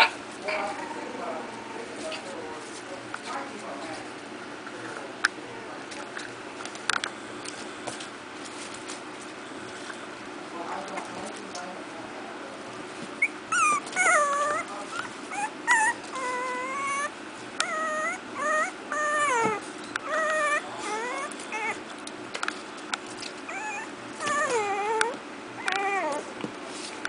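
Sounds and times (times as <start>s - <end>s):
puppies whimpering and whining: 0.0s - 2.8s, 13.2s - 22.0s, 23.4s - 26.4s.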